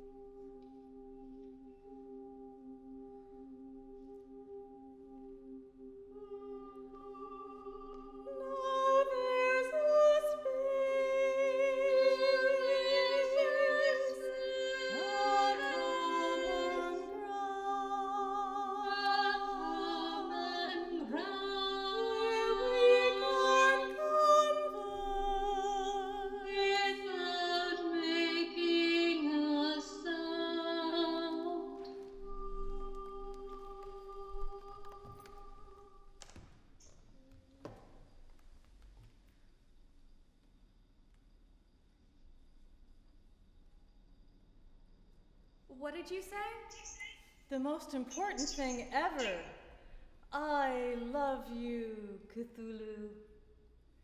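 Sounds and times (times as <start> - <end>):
choir holding low notes: 0.0 - 36.2.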